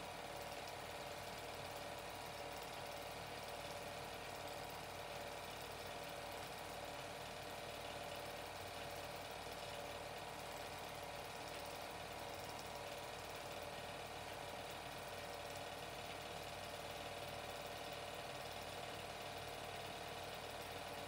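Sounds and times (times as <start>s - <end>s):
film projector running: 0.0s - 21.0s.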